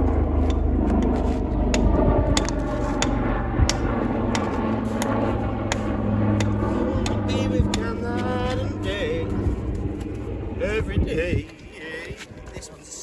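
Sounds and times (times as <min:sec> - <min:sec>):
engine running: 0:00.0 - 0:12.1
hammer striking stone: 0:01.8 - 0:03.1.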